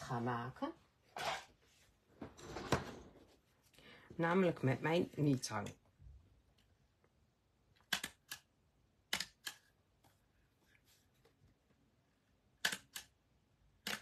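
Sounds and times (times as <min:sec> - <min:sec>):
hand stapler clicks: 0:07.8 - 0:08.5, 0:12.6 - 0:13.1.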